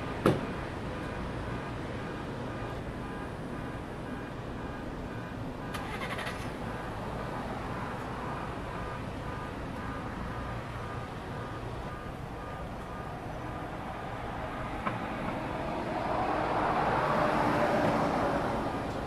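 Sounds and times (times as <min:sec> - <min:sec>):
steady road traffic: 0:00.0 - 0:19.0
vehicle passing close by: 0:13.8 - 0:19.0.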